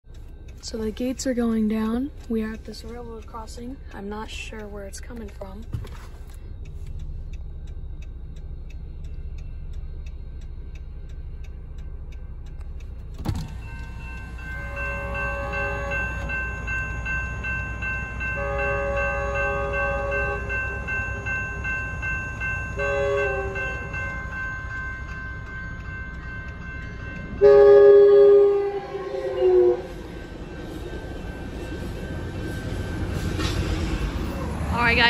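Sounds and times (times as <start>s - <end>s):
railroad crossing bell ringing: 0.0s - 5.7s, 6.4s - 35.0s
train horn blasts: 14.5s - 16.5s, 18.3s - 21.2s, 22.7s - 24.0s, 27.4s - 30.0s.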